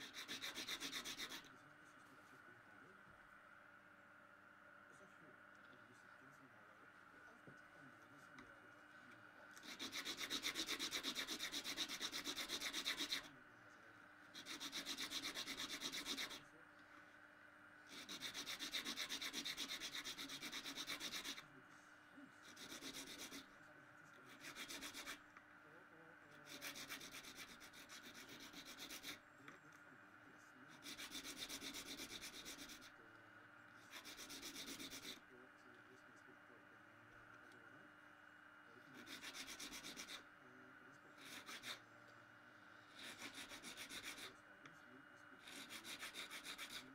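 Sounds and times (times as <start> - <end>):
hand tool rasping strokes: 0.0 - 1.4, 9.6 - 13.3, 14.4 - 16.4, 17.9 - 21.4, 22.4 - 23.4, 24.3 - 25.2, 26.5 - 29.2, 39.0 - 40.2, 41.2 - 41.8, 43.0 - 44.3, 45.4 - 46.9.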